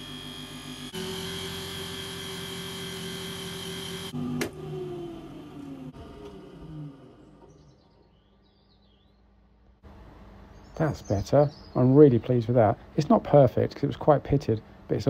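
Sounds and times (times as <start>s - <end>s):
buffing machine motor whine: 0.0s - 7.6s.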